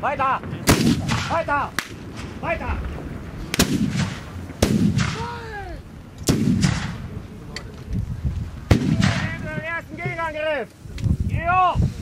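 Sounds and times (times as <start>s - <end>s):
cannons firing: 0.0s - 5.5s, 6.2s - 7.2s, 8.6s - 9.7s.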